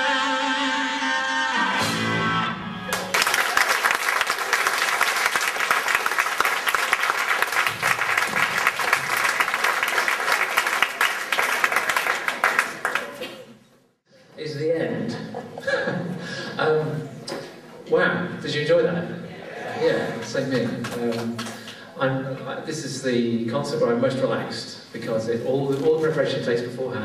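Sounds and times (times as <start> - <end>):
audience applauding: 2.9 - 13.5.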